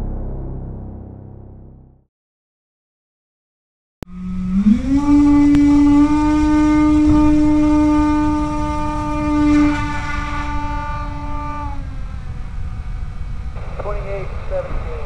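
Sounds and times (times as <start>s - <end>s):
electric plane motor buzzing: 4.1s - 11.6s.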